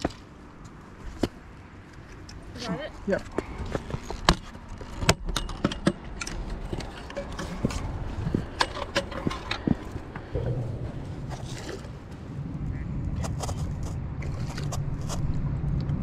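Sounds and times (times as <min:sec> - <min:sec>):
low rumble: 0:06.5 - 0:15.9.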